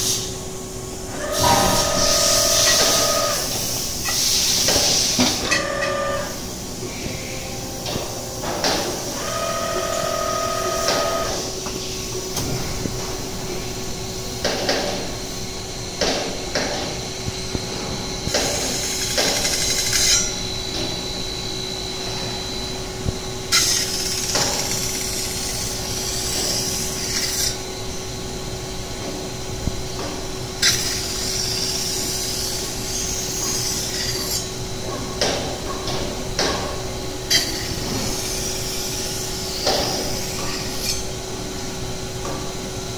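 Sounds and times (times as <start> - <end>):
machine hum: 0.0 - 33.4
brief machine whine: 1.1 - 14.2.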